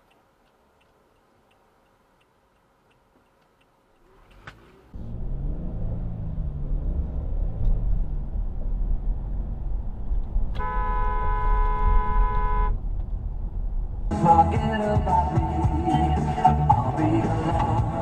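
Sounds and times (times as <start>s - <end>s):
car engine and road noise: 0.0s - 18.0s
car horn long blast: 10.5s - 12.8s.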